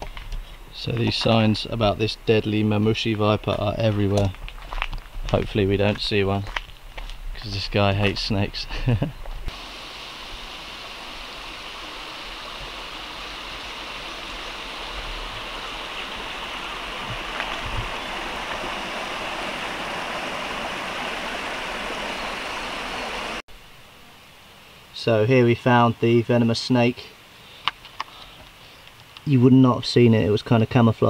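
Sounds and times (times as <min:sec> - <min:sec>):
stream rushing over rocks: 0:09.5 - 0:23.4.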